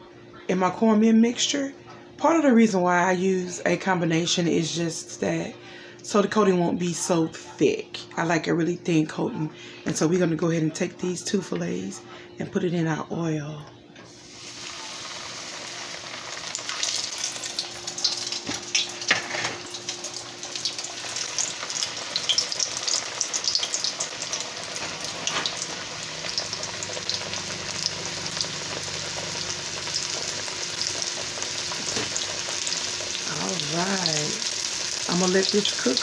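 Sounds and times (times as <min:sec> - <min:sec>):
fish frying in hot oil: 0:14.2 - 0:36.0.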